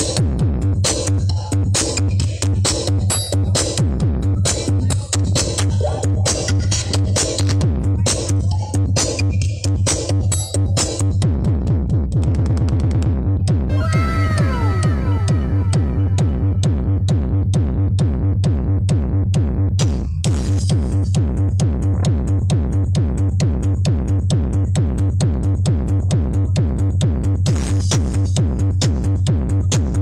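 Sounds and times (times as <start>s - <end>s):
electronic dance music: 13.7s - 17.3s.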